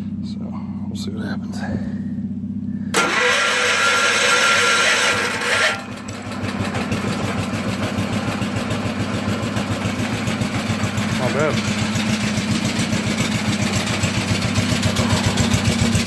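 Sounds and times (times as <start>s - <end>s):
garden tractor engine starting: 2.9s - 16.0s.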